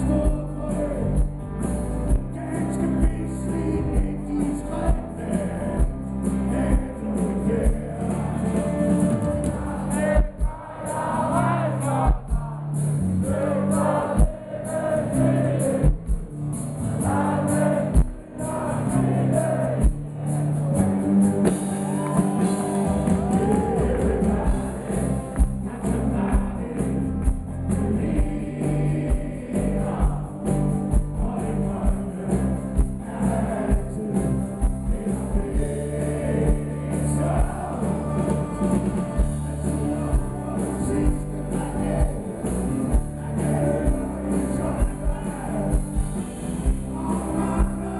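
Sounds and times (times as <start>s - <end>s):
drums: 0.0s - 47.9s
electric and acoustic guitars: 0.0s - 47.9s
person singing: 31.2s - 45.9s, 46.6s - 47.9s.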